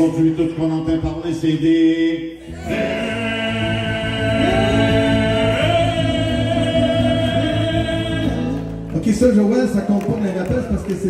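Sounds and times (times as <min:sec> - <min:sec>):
men singing in harmony: 0:02.5 - 0:08.7.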